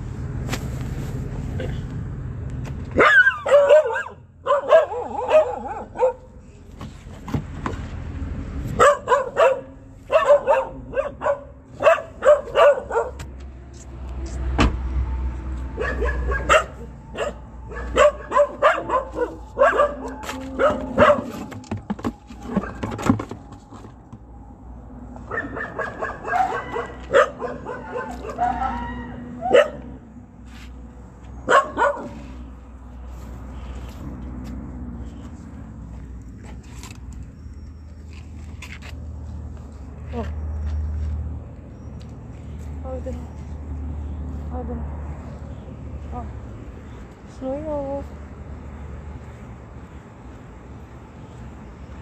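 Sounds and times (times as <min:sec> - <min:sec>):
dog barking: 0:03.0 - 0:06.4, 0:08.8 - 0:13.2, 0:15.8 - 0:21.4, 0:25.3 - 0:30.0, 0:31.4 - 0:32.2.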